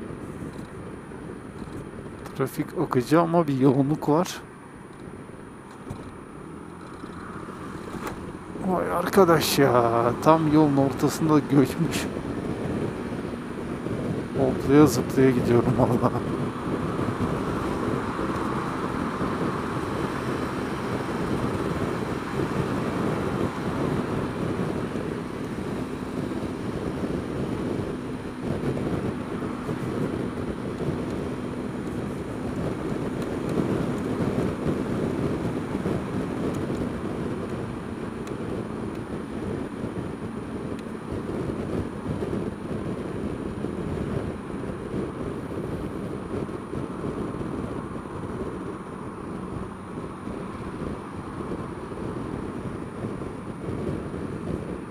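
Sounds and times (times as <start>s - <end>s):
traffic noise: 0.0s - 54.9s
wind rush on microphone: 0.0s - 54.9s
scooter engine running: 14.8s - 54.9s.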